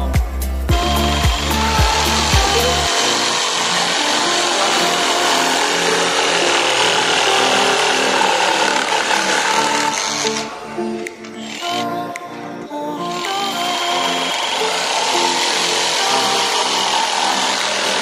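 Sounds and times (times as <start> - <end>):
jigsaw cutting wood: 0.7 - 11.8, 13.0 - 18.0.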